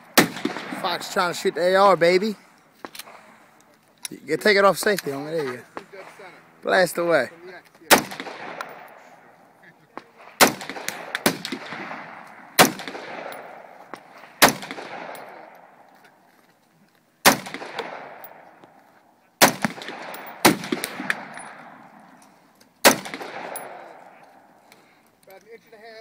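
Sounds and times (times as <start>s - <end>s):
rifle shots with rolling echo: 0.0s - 3.3s, 5.1s - 16.0s, 17.2s - 18.8s, 19.4s - 24.7s.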